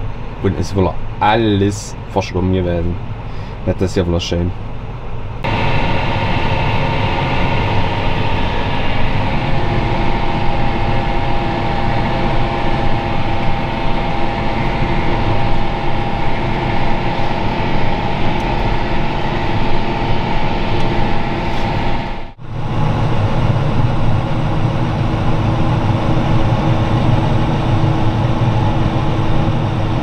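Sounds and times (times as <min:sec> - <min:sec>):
steady whine: 0:00.0 - 0:30.0
tractor engine drone: 0:00.0 - 0:30.0.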